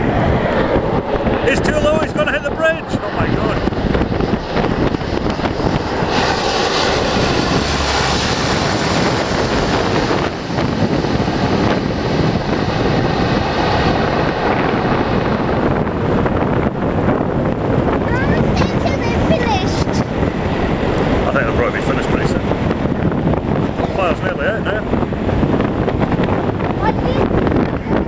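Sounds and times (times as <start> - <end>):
aircraft engines droning: 0.0 - 28.0
wind buffeting microphone: 0.0 - 28.0.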